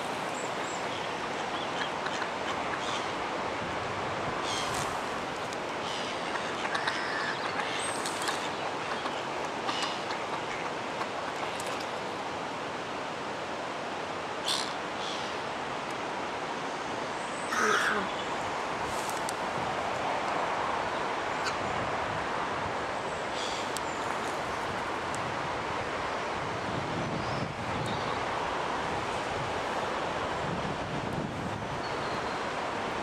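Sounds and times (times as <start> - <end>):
birds harsh calls: 17.4 - 18.3.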